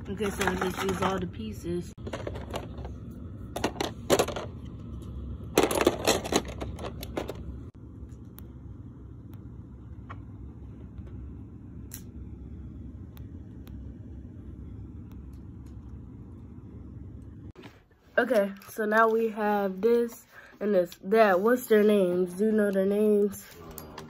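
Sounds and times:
plastic and metal parts clattering: 0.0 - 1.3, 2.0 - 2.9, 3.5 - 4.5, 5.5 - 7.5
low steady hum: 0.0 - 24.0.

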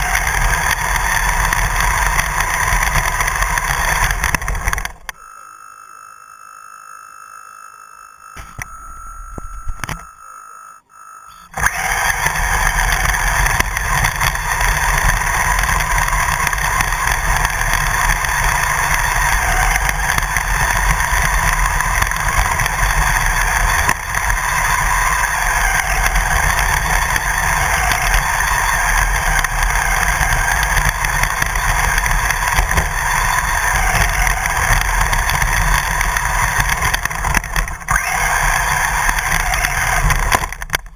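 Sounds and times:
rattle from rough ground: 0.0 - 5.2, 11.5 - 40.9
rc car motor running: 0.0 - 8.6, 9.9 - 40.9.

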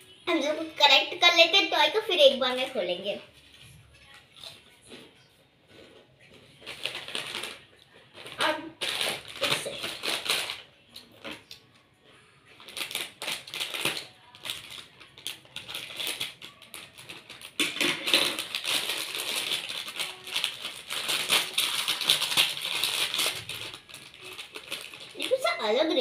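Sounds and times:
plastic snack packet crinkling: 6.4 - 11.7, 12.5 - 26.0.

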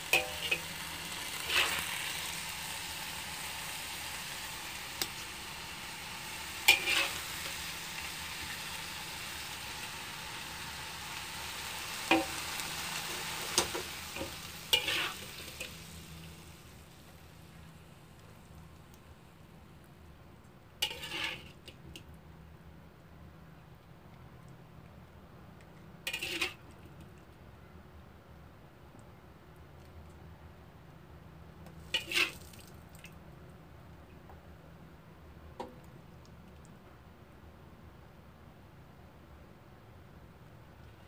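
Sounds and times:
spatula scraping a pan: 0.0 - 0.7, 1.4 - 2.0, 6.6 - 7.6, 13.5 - 15.7, 20.8 - 21.6, 26.1 - 26.6, 31.9 - 32.4
stir-fry sizzling in a wok: 0.0 - 18.5, 20.8 - 21.6, 26.1 - 26.6, 31.8 - 32.4.

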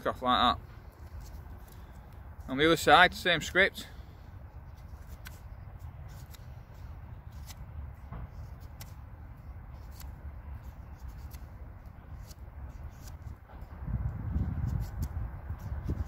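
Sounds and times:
knife scraping bark off wood: 4.6 - 16.0.

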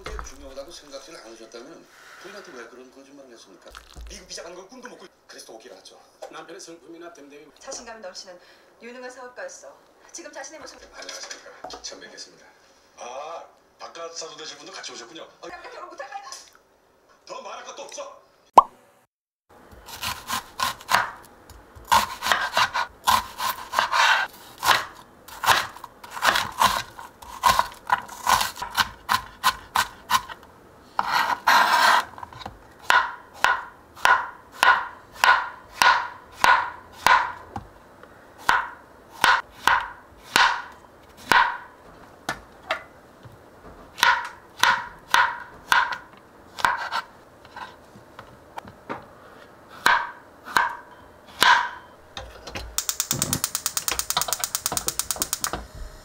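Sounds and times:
knife chopping on cutting board: 19.9 - 21.2, 21.8 - 30.4, 31.0 - 37.7, 38.4 - 41.7, 44.0 - 47.7, 49.8 - 50.8, 51.4 - 51.8.

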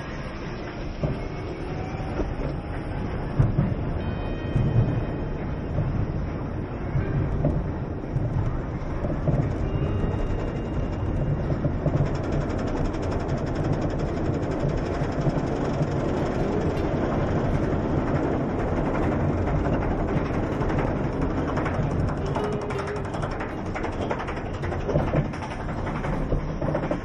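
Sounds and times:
roller coaster mechanical rumble: 0.0 - 27.0
rapid lift hill clicking: 7.3 - 27.0.

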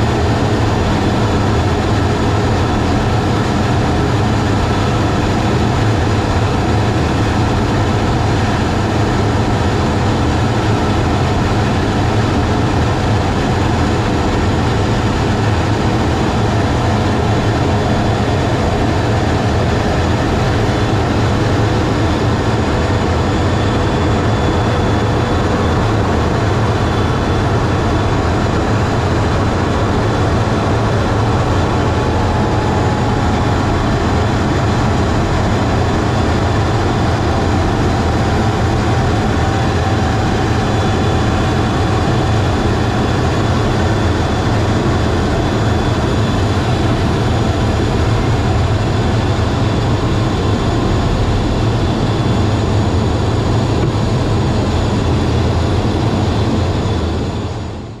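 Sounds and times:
jet engine in cockpit: 0.0 - 58.0
air rushing: 24.1 - 37.5.

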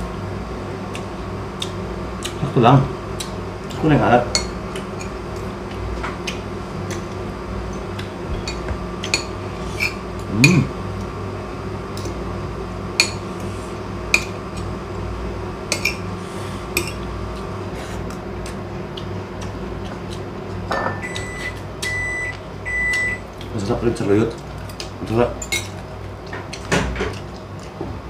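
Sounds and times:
steady background hum: 0.0 - 28.0
tableware clinking on plates: 20.7 - 21.0.

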